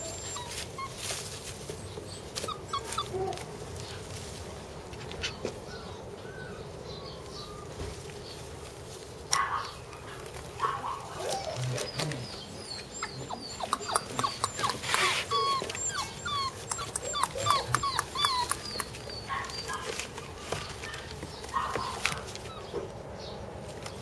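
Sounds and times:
puppies whimpering: 0:00.0 - 0:03.4, 0:05.2 - 0:07.8, 0:11.0 - 0:22.8.

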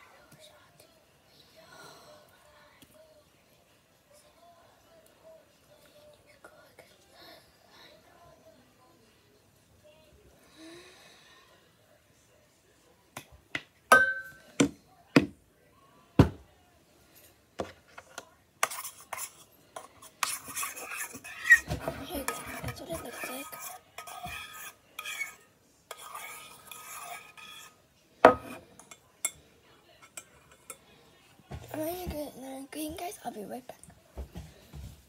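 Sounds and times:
fork scraping in metal pot: 0:18.6 - 0:29.4.

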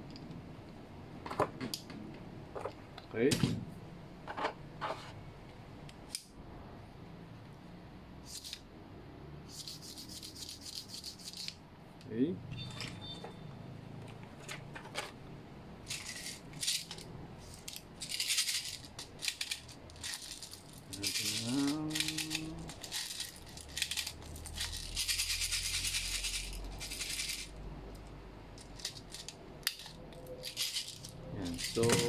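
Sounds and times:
plastic bbs rattling and clicking: 0:15.9 - 0:32.0.

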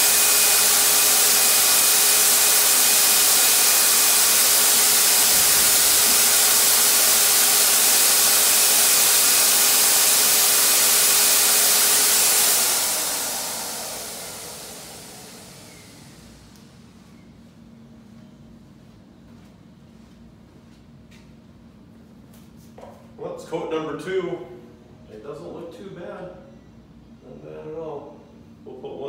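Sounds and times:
paint sprayer turbine running: 0:00.0 - 0:17.1.

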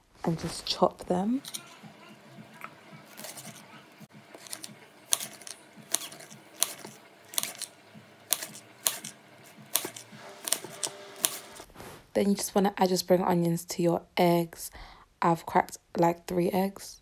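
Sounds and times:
knife chopping on a board: 0:03.0 - 0:11.6.

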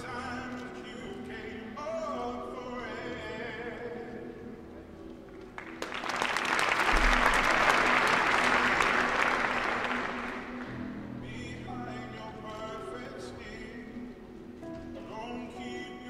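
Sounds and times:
audience applauding: 0:05.6 - 0:10.8.

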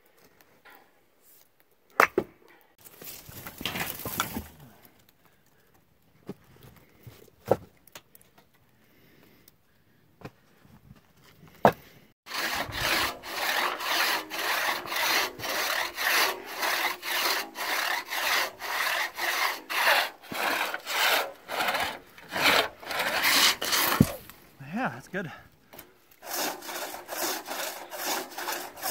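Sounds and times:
crosscut saw cutting log: 0:12.3 - 0:24.3, 0:26.2 - 0:28.9.

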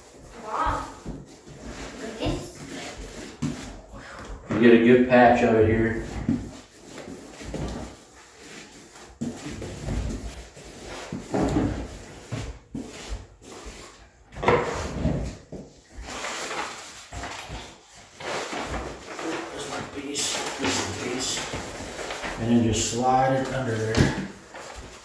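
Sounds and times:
paintbrush scrubbing glue on floor: 0:00.0 - 0:03.9.

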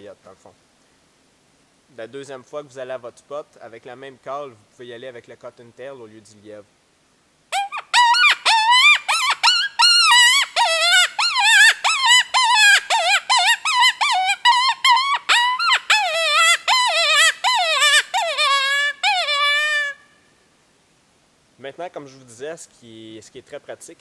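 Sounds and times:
predator call rabbit distress cries: 0:07.5 - 0:20.0.

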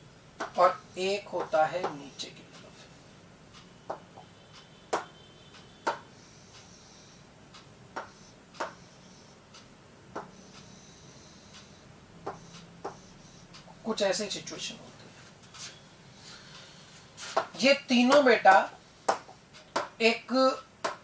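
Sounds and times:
faint room hum: 0:00.0 - 0:21.0
taps on glass display board: 0:04.9 - 0:05.1, 0:05.9 - 0:06.1.

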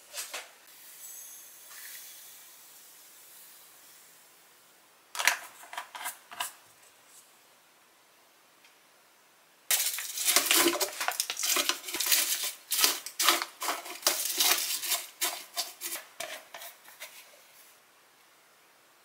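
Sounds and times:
plastic packaging crinkling: 0:09.7 - 0:17.2
dry food crackling: 0:09.7 - 0:17.3.

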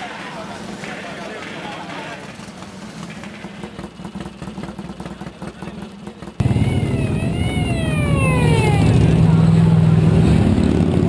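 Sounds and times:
motorcycle engines running: 0:00.0 - 0:11.0
motorcycles riding past: 0:06.4 - 0:11.0.

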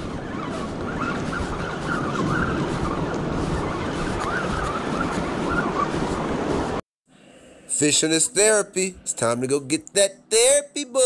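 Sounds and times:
wind on microphone: 0:00.0 - 0:06.8.

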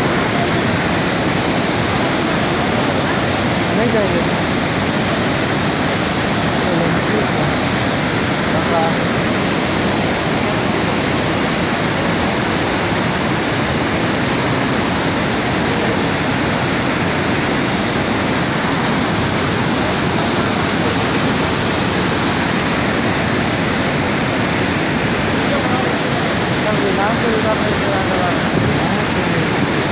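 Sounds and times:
water rushing over waterfall: 0:00.0 - 0:29.9.

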